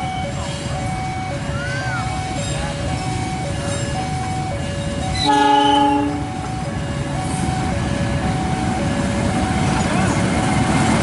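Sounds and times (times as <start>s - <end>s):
two-tone level-crossing alarm: 0.0s - 9.8s
train rumble: 0.0s - 11.0s
locomotive horn: 5.1s - 6.5s.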